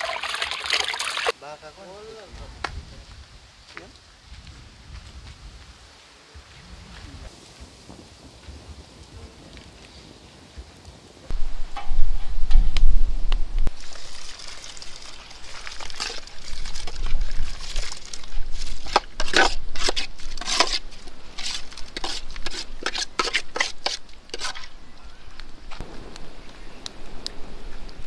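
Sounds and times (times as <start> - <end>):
wood fire crackling: 8.4 - 28.0
low rumble: 11.3 - 13.8
water sloshing in metal pot: 13.8 - 24.7.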